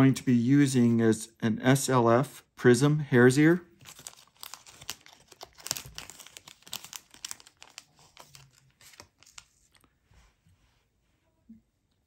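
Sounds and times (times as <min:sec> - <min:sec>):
fibres crinkling in fingers: 0:03.8 - 0:09.9.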